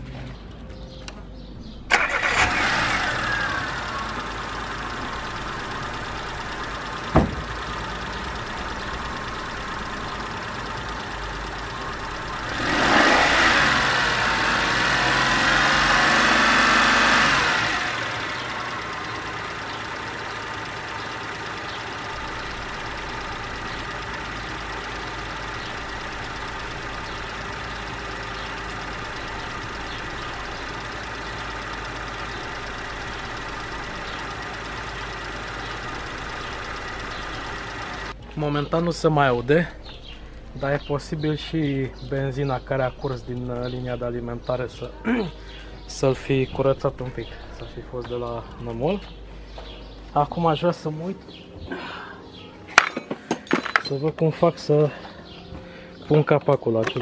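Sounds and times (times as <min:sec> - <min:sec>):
car engine starting and idling: 0:00.7 - 0:52.7
engine revving: 0:01.9 - 0:38.2.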